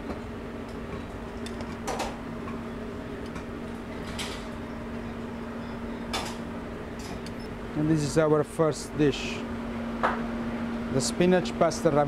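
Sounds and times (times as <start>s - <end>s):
kitchen machinery hum: 0.0s - 12.0s.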